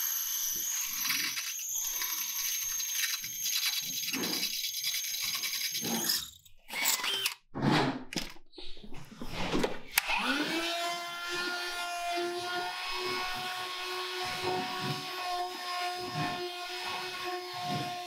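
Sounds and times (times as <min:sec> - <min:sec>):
cordless drill drilling: 0:00.0 - 0:07.4, 0:09.9 - 0:18.0
vacuum motor whining: 0:09.9 - 0:18.0.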